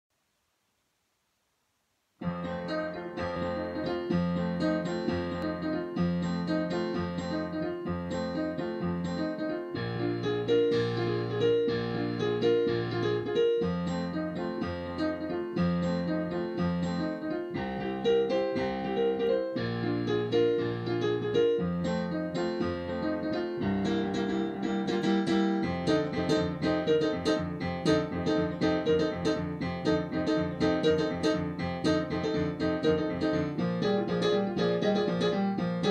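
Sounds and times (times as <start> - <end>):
boogie-woogie piano: 2.2 - 35.9.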